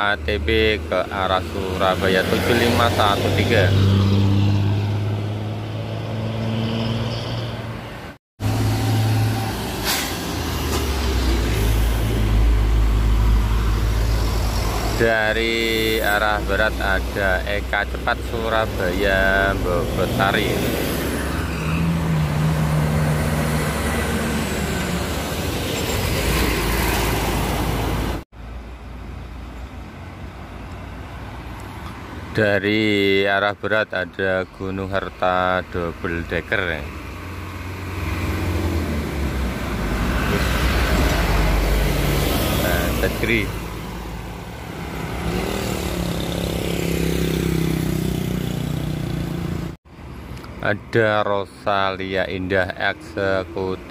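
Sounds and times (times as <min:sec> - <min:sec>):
buses and truck passing: 0:00.0 - 0:53.9
distant traffic hum: 0:00.0 - 0:53.9
motorcycle engine passing: 0:45.0 - 0:49.7.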